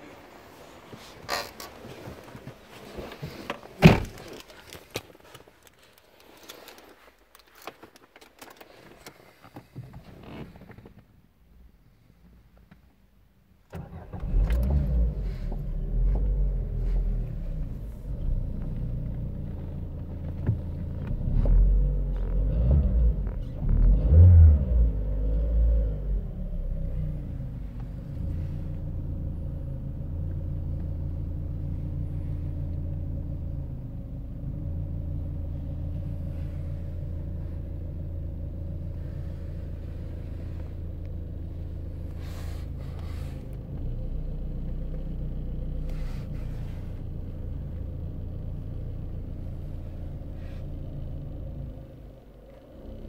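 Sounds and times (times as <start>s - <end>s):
car engine revving and idling: 13.7s - 53.0s.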